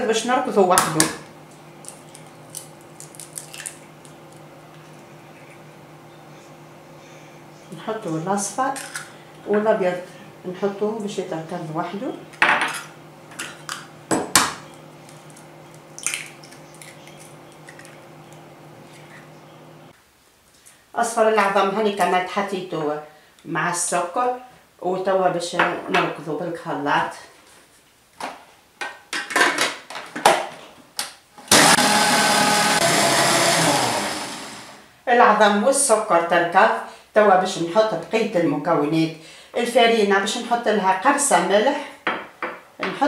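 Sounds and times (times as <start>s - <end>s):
stand mixer motor running: 31.5s - 34.8s.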